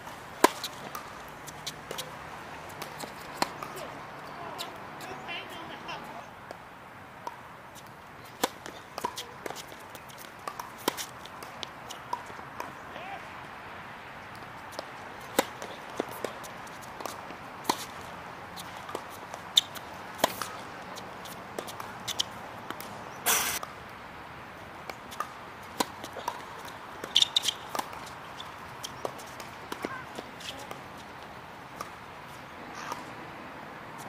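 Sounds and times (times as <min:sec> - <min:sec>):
tennis ball bounces: 0:00.4 - 0:06.6, 0:07.2 - 0:13.6, 0:14.2 - 0:23.8, 0:24.8 - 0:33.4
tennis racket strikes: 0:23.2 - 0:23.6.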